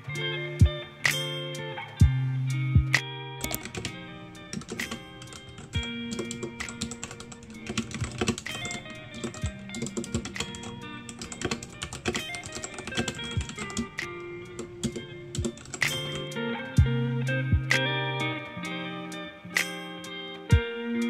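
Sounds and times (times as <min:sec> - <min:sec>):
background guitar music: 0:00.0 - 0:21.0
keyboard key clacks: 0:04.5 - 0:16.3.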